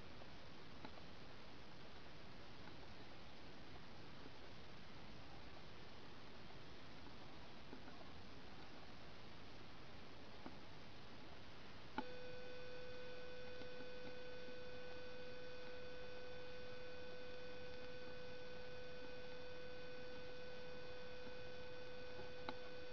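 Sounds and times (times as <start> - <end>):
faint background hiss: 0.0 - 22.9
steady tone: 11.5 - 22.9
click: 12.0 - 12.2, 13.6 - 14.3, 17.7 - 17.9, 22.2 - 22.8.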